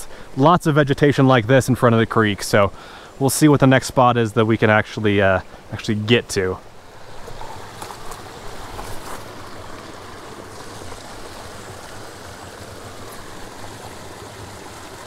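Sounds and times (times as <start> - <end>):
creek running: 0.0 - 15.0
rustles of pushing through brush: 7.0 - 13.5.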